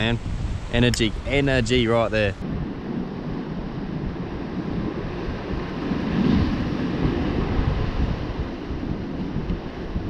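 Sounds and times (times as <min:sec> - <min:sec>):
ocean surf against rocks: 0:00.0 - 0:10.0
wind noise on microphone: 0:00.0 - 0:10.0.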